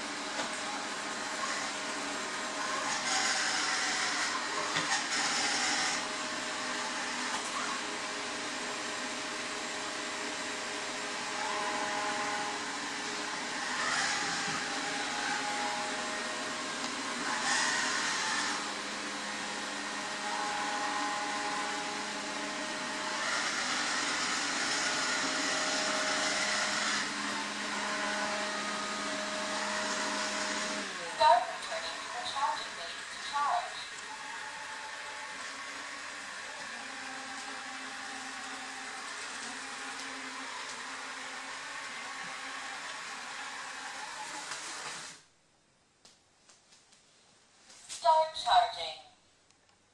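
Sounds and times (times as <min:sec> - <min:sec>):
robot vacuum cleaner whirring: 0:00.0 - 0:45.3.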